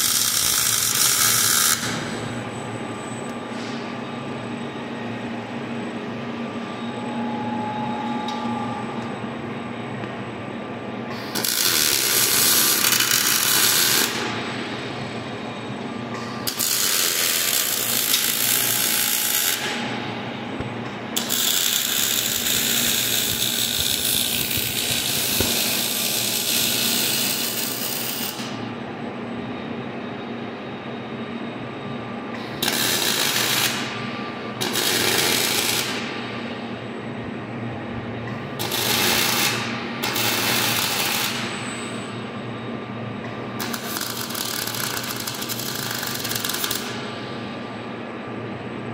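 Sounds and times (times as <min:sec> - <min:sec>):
welding arc crackling: 0:00.0 - 0:02.0, 0:11.3 - 0:14.3, 0:16.5 - 0:19.8, 0:21.2 - 0:28.4, 0:32.6 - 0:33.9, 0:34.6 - 0:36.0, 0:38.6 - 0:41.5, 0:43.6 - 0:47.0
low steady machine hum: 0:00.0 - 0:48.9.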